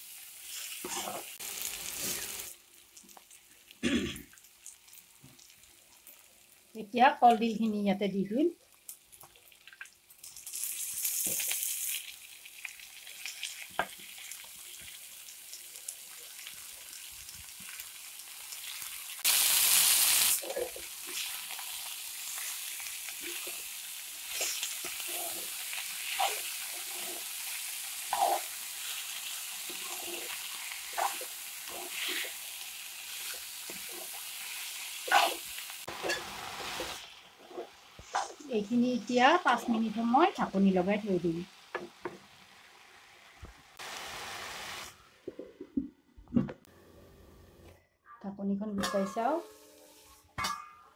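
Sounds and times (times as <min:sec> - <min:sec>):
food sizzling in a wok: 0:00.0 - 0:45.0, 0:48.8 - 0:50.6
metal spatula scraping pan: 0:48.8 - 0:50.9.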